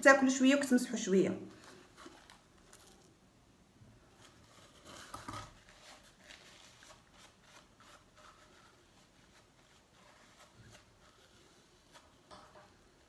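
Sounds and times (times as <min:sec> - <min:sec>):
tissue rustling on lips: 0:04.0 - 0:12.2.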